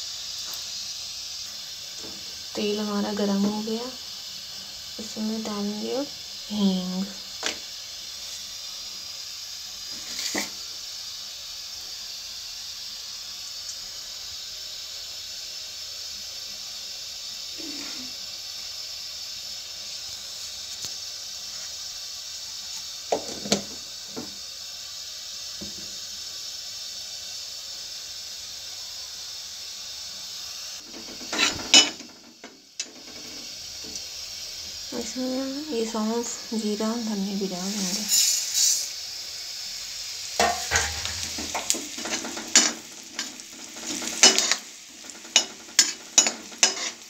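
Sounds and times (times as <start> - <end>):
oil sizzling in a pan: 0.0 - 47.0
ladle clattering against pan: 40.4 - 42.8.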